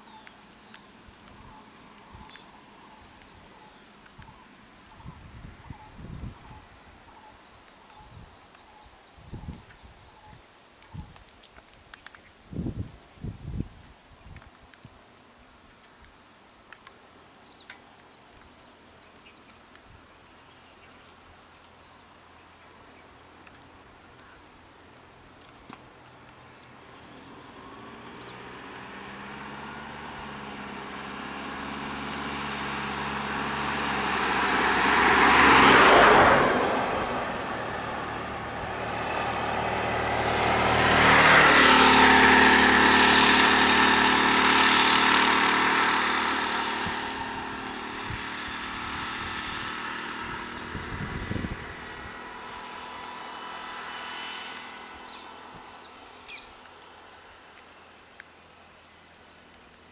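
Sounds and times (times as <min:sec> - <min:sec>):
high insect drone: 0:00.0 - 0:59.9
vehicles driving past: 0:25.6 - 0:58.4.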